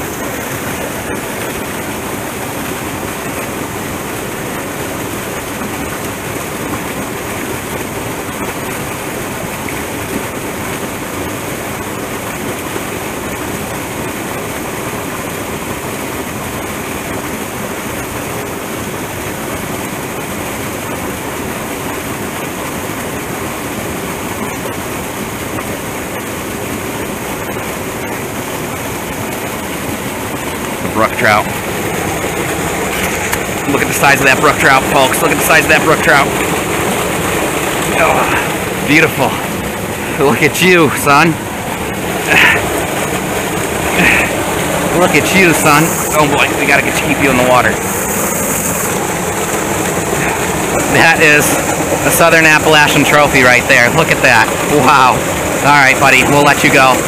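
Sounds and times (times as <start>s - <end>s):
stream water pouring into a pool: 0.0s - 57.0s.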